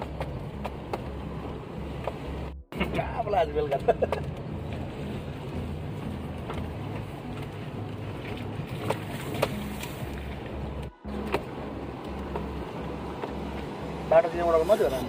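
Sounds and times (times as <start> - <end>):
car engine and tyre rumble: 0.0 - 15.0.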